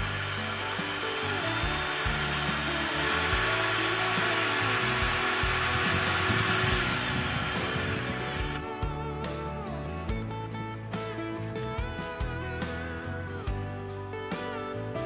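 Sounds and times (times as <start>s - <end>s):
cordless drill whining: 0.0s - 9.2s
background music with steady beat: 0.0s - 15.0s.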